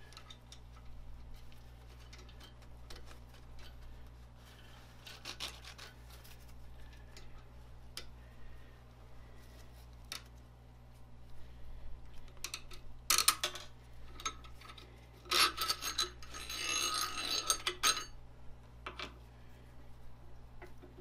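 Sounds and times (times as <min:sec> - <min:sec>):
ringing rattle of metal on metal: 0:15.3 - 0:18.2.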